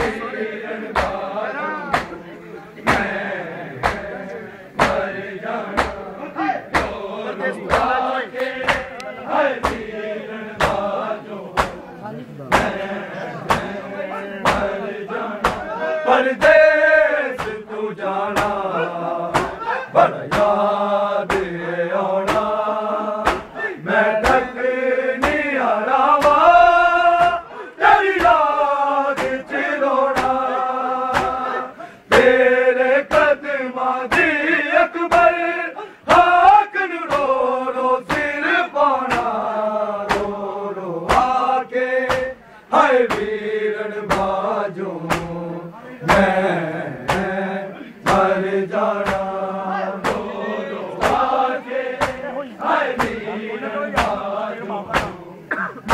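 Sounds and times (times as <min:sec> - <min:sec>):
group of men chanting: 0:00.0 - 0:55.9
hands slapping chests: 0:00.9 - 0:01.2, 0:01.9 - 0:02.2, 0:03.8 - 0:04.1, 0:04.8 - 0:05.1, 0:05.7 - 0:06.0, 0:06.7 - 0:07.0, 0:07.7 - 0:09.9, 0:10.6 - 0:10.9, 0:11.6 - 0:11.8, 0:12.5 - 0:12.8, 0:13.4 - 0:13.8, 0:19.3 - 0:19.6, 0:22.3 - 0:22.5, 0:23.2 - 0:23.5, 0:25.2 - 0:25.4, 0:29.2 - 0:29.4, 0:30.2 - 0:30.4, 0:31.1 - 0:31.4, 0:38.1 - 0:38.3, 0:39.1 - 0:39.4, 0:40.1 - 0:40.4, 0:41.1 - 0:41.4, 0:43.1 - 0:43.3, 0:44.1 - 0:44.4, 0:45.1 - 0:45.4, 0:47.0 - 0:47.3, 0:48.0 - 0:48.3, 0:49.0 - 0:49.3, 0:50.0 - 0:50.3, 0:51.0 - 0:51.3, 0:52.0 - 0:52.2, 0:53.0 - 0:53.2, 0:54.0 - 0:54.3, 0:54.9 - 0:55.2.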